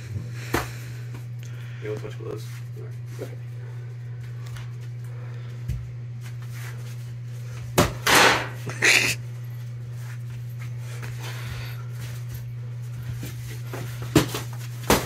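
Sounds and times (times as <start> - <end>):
steady low hum: 0.0 - 15.0
gloved punches and scuffling: 13.7 - 15.0.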